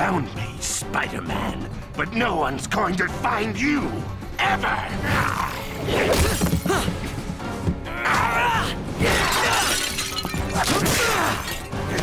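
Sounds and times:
action background music: 0:00.0 - 0:12.0
window glass shattering: 0:09.1 - 0:12.0.

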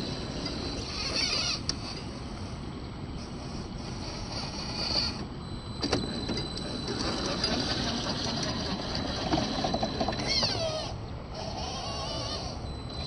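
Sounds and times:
toy car electric motor whining: 0:00.0 - 0:02.1, 0:03.2 - 0:13.0.

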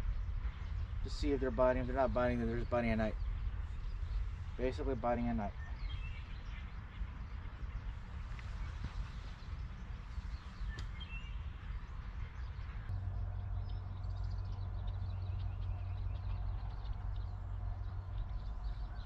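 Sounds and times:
birds chirping: 0:00.0 - 0:19.0
steady low hum: 0:00.0 - 0:19.0
steady low rumble: 0:00.0 - 0:19.0.

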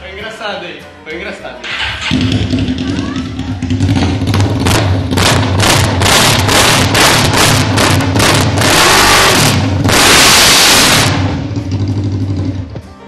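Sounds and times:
motorcycle engine revving loudly: 0:01.7 - 0:12.7.

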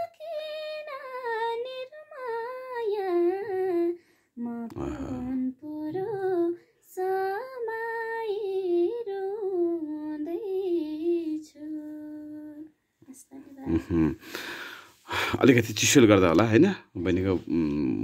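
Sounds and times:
woman singing unaccompanied: 0:00.0 - 0:14.1.

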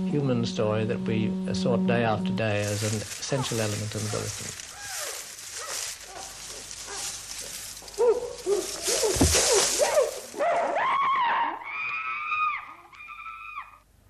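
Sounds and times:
old film soundtrack hiss: 0:00.0 - 0:10.5
chimpanzees hooting and screaming: 0:07.9 - 0:13.8.

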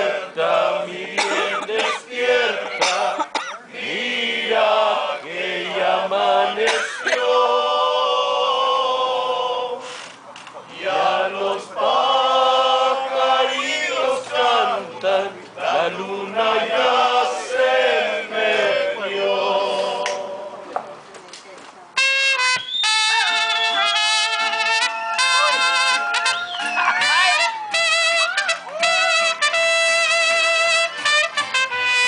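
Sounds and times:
men singing together: 0:00.0 - 0:09.8, 0:10.7 - 0:20.5.

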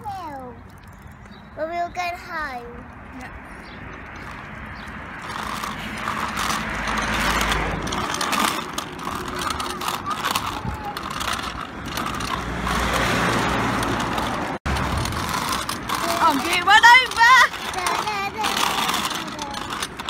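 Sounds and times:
bike rattling over tarmac: 0:00.0 - 0:20.0.

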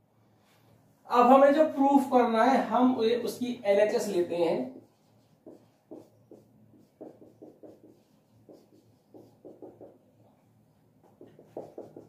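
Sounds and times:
marker pen writing on whiteboard: 0:04.4 - 0:12.0.

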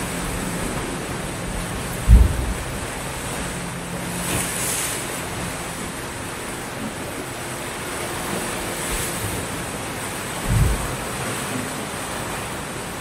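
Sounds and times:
waves breaking on beach: 0:00.0 - 0:13.0.

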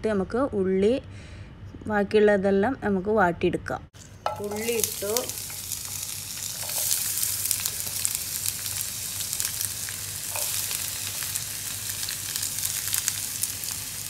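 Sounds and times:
onions sizzling in oil: 0:04.0 - 0:14.0.

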